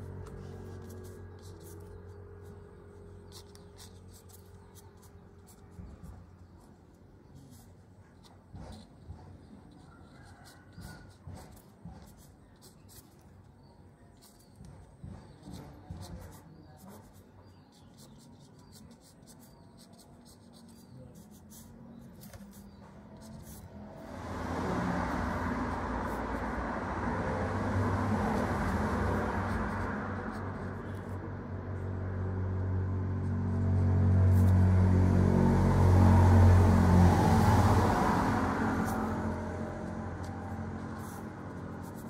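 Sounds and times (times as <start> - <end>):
pencil scratching on paper: 0.0 - 42.0.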